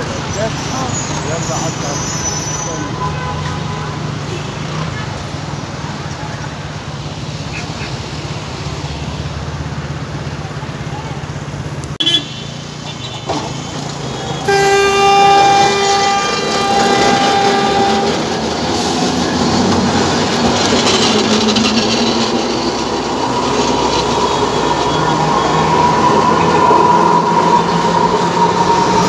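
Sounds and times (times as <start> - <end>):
tram cars rumbling on rails: 0.0 - 29.0
tram horn: 2.4 - 4.8, 12.0 - 21.1.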